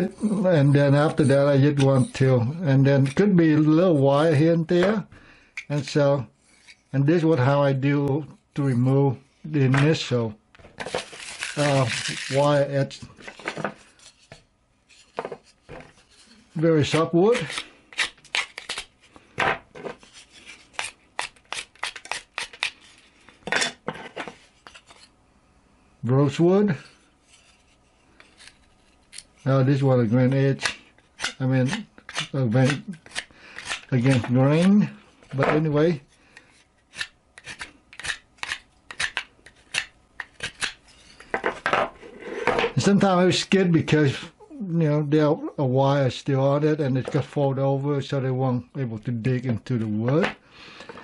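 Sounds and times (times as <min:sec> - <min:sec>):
knife scraping into wood: 0:06.4 - 0:06.9, 0:30.6 - 0:34.7
knife cutting wood chips: 0:16.8 - 0:18.9, 0:20.3 - 0:23.0, 0:30.5 - 0:34.7.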